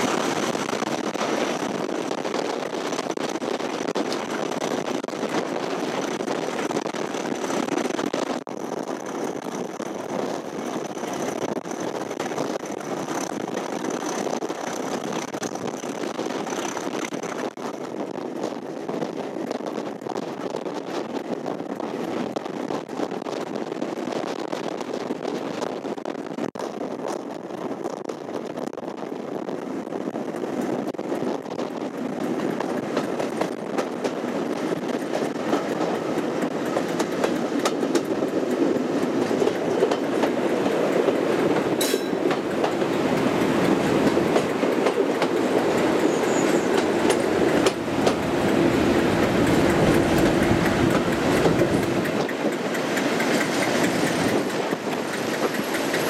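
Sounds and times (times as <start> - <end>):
wheel and rail noise: 0.0 - 56.0
diesel locomotive engine: 29.0 - 56.0.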